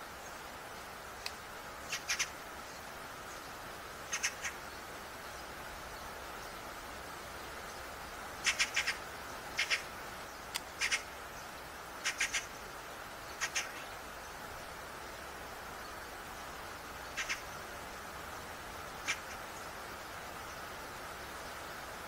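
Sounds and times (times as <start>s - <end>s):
outdoor hiss: 0.0s - 22.0s
bird chattering calls: 1.8s - 2.4s, 4.0s - 4.6s, 8.4s - 11.2s, 12.0s - 12.6s, 13.3s - 13.9s, 17.1s - 17.6s, 18.9s - 19.5s.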